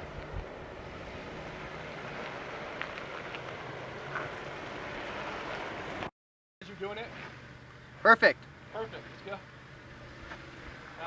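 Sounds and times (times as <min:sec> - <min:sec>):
engine running low: 0:00.0 - 0:06.1.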